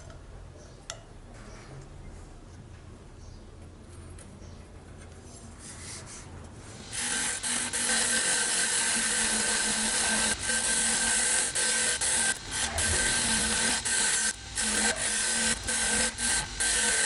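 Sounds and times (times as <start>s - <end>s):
grinder motor hum: 6.8s - 17.0s
wire wheel scrubbing steel blade: 6.8s - 17.0s.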